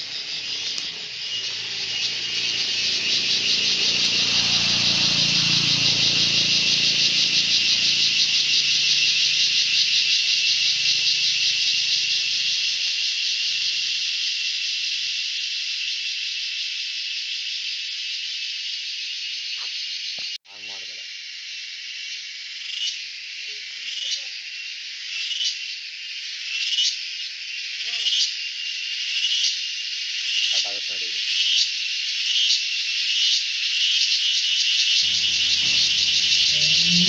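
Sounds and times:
insect chorus buzzing: 0.0s - 37.0s
low engine hum: 0.1s - 9.9s, 35.0s - 37.0s.

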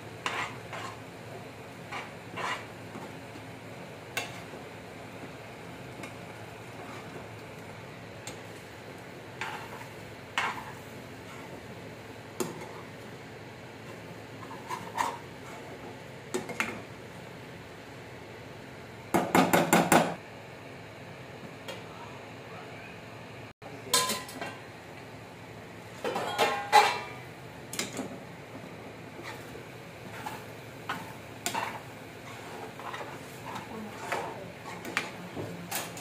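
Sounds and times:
metal spoon scraping a frying pan: 0.2s - 1.0s, 1.9s - 2.7s, 9.4s - 11.5s, 14.4s - 15.7s, 29.2s - 36.0s.

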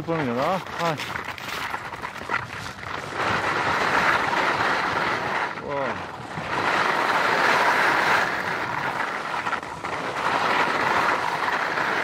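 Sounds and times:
skis scraping on ice: 0.0s - 12.0s.

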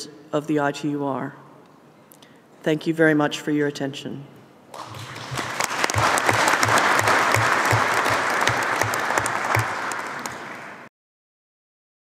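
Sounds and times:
audience applauding: 4.7s - 10.9s.

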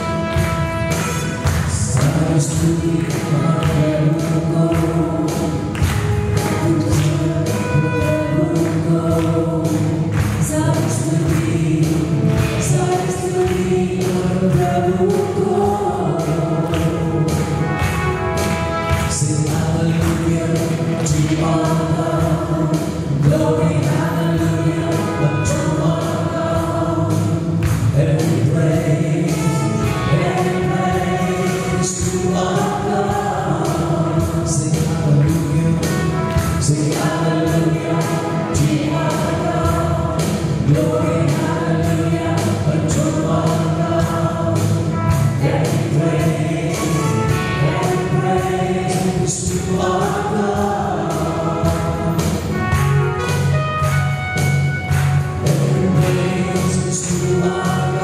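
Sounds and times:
congregation singing: 0.0s - 58.0s
man and woman singing: 1.0s - 18.1s, 18.7s - 52.6s, 55.4s - 58.0s
electronic keyboard with beat: 44.6s - 56.8s.

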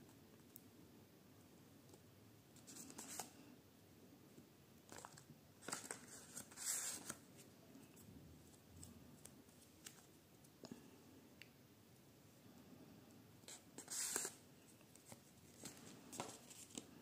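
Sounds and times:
paper rustling and crinkling: 4.9s - 7.5s, 13.5s - 17.0s.

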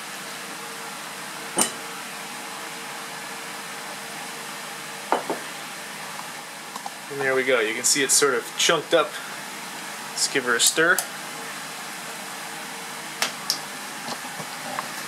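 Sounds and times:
glassware clinking: 1.6s - 1.8s, 5.1s - 5.4s.

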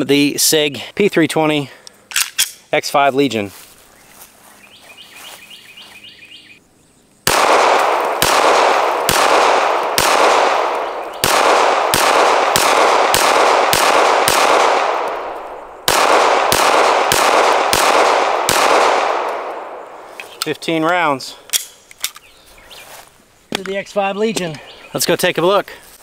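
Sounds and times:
pistol shots with ringing echo: 7.2s - 20.1s.

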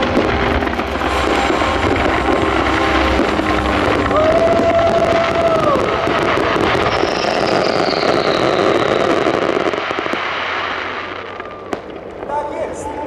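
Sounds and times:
fireworks crackling and fizzing: 0.0s - 13.0s
high falling whistle: 1.2s - 9.6s.

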